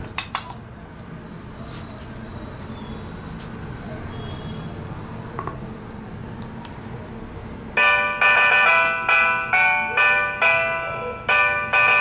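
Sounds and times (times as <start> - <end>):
high electronic beep: 0.0 - 0.7.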